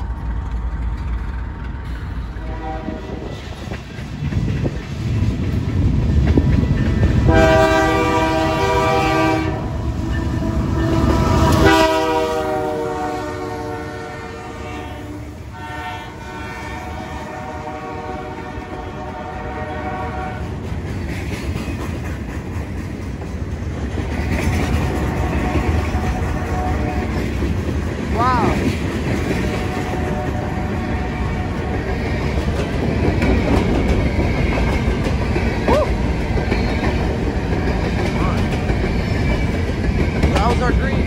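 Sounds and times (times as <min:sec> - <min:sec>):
diesel locomotives rumbling past: 0:00.0 - 0:41.0
locomotive air horn blasts: 0:02.4 - 0:03.3, 0:07.3 - 0:20.4, 0:26.0 - 0:27.1
freight cars clattering over rails: 0:31.8 - 0:41.0.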